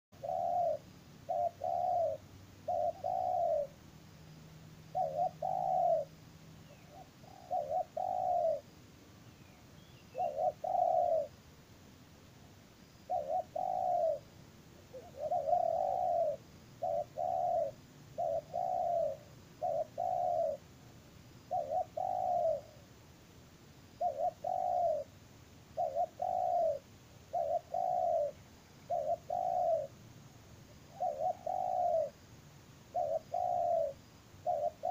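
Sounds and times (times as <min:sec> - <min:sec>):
dove cooing: 0:00.2 - 0:03.8, 0:04.9 - 0:08.8, 0:09.9 - 0:11.4, 0:13.0 - 0:20.7, 0:21.4 - 0:22.8, 0:24.0 - 0:30.0, 0:30.7 - 0:32.2, 0:32.9 - 0:34.9.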